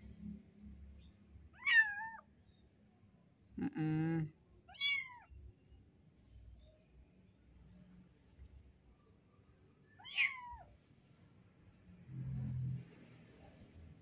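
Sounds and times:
kittens meowing: 1.6s - 2.2s, 4.7s - 5.3s, 10.0s - 10.7s.

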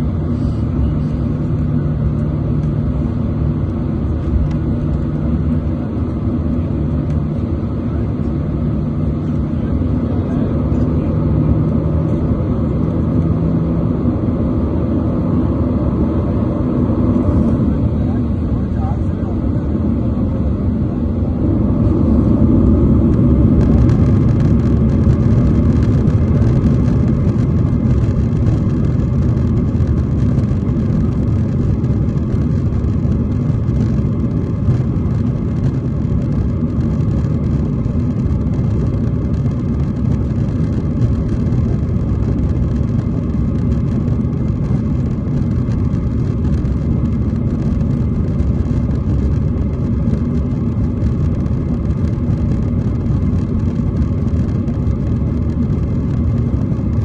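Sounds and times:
jet engines rumbling in cabin: 0.0s - 57.0s
wheels rolling on runway: 21.4s - 57.0s.

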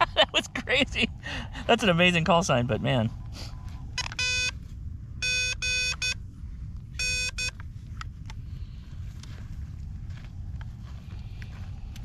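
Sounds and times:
morse code beeps: 4.0s - 4.6s, 5.2s - 6.2s, 7.0s - 7.6s.

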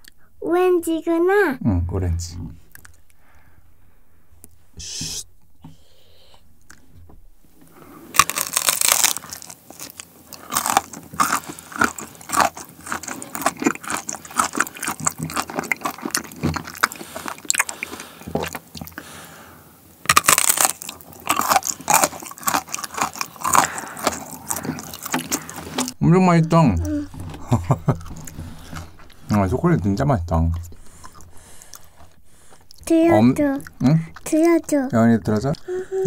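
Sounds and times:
chocolate snapping: 8.1s - 17.7s, 20.1s - 26.0s
crunching and chewing: 8.1s - 19.1s, 20.0s - 26.0s, 27.0s - 29.4s.

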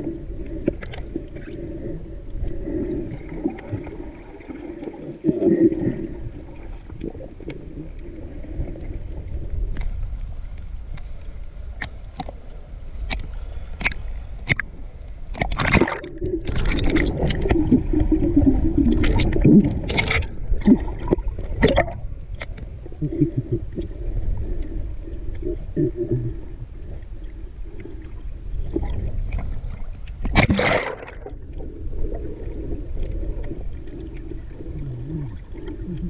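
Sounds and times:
underwater rumble of moving water: 0.0s - 36.0s
sharp underwater clicks: 13.0s - 14.7s, 15.3s - 17.6s, 29.3s - 31.2s.

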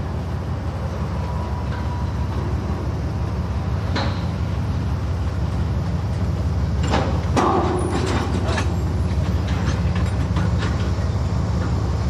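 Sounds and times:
freight train rumbling past: 0.0s - 12.0s
clicks and clanks from cars: 3.8s - 4.6s, 5.2s - 12.0s.

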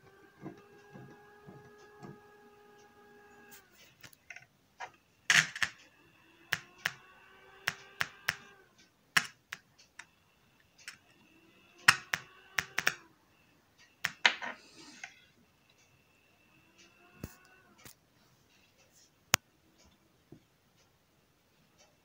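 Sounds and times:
faint whining tones: 0.0s - 22.0s.

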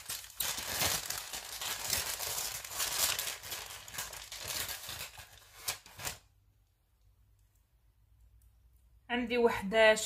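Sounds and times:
packaging crinkling: 0.0s - 6.3s.

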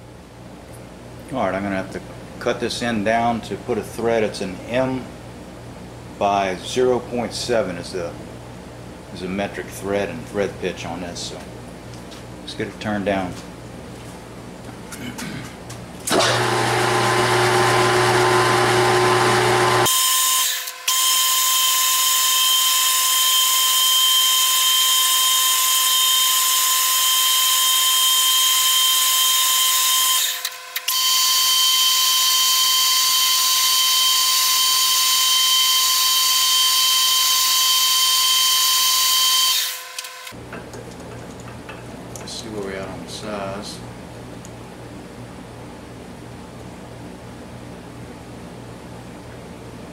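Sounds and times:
lathe hum: 16.1s - 40.3s
metal lathe whine: 16.1s - 40.3s.

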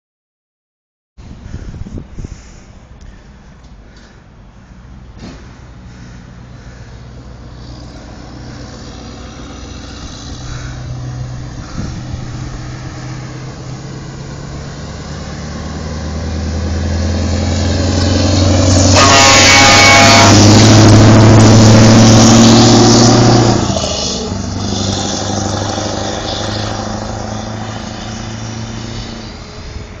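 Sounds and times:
tyre and wind noise: 1.2s - 3.8s, 11.4s - 13.0s
diesel truck engine passing: 3.7s - 30.0s.

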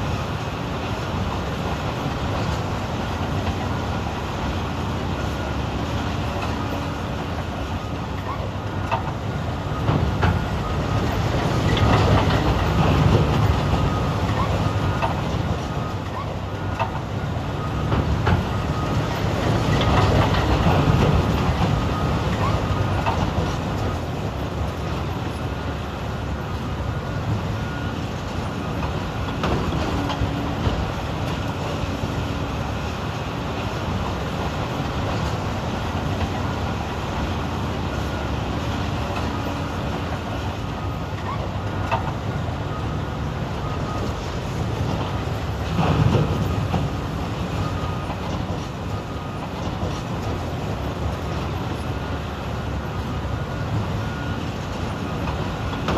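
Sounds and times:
excavator diesel engine rumbling: 0.0s - 55.9s.

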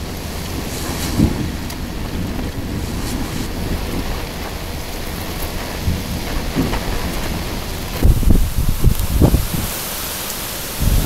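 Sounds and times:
heavy rain pouring: 0.0s - 11.0s
thunder rumbling: 0.0s - 11.0s.

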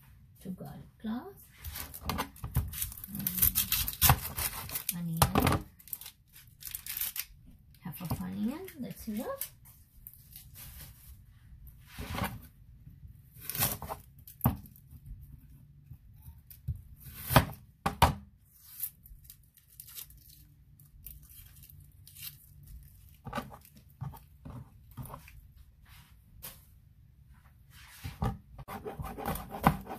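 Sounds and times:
papery skin tearing and crinkling: 2.6s - 7.4s, 18.6s - 24.3s.

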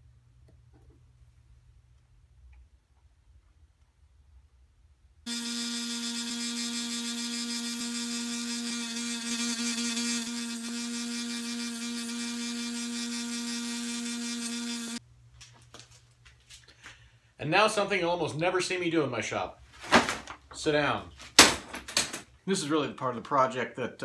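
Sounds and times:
belt sander running: 5.3s - 15.0s.

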